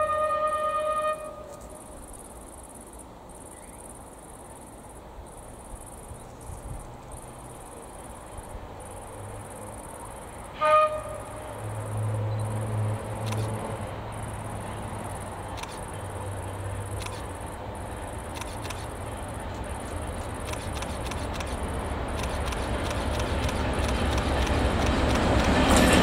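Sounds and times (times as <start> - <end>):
locomotive horn blast: 0.0 - 1.6, 10.5 - 11.7
insects chirping: 0.0 - 26.0
locomotive engine rumble: 11.1 - 26.0.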